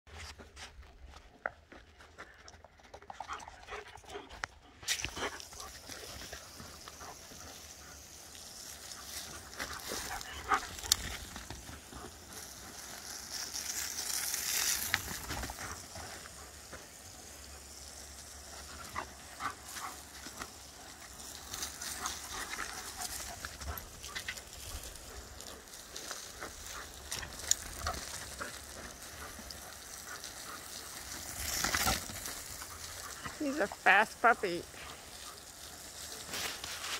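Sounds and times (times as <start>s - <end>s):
puppy panting: 3.0s - 12.7s, 18.8s - 31.4s
hose spray hissing: 4.8s - 36.9s.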